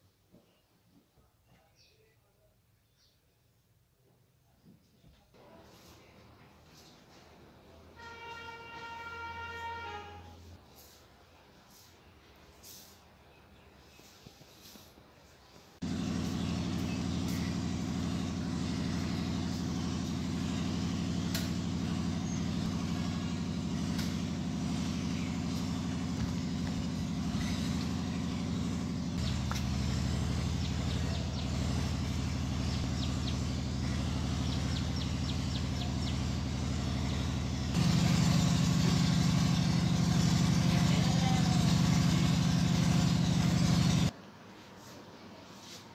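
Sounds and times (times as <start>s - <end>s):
low engine hum: 15.8s - 44.1s.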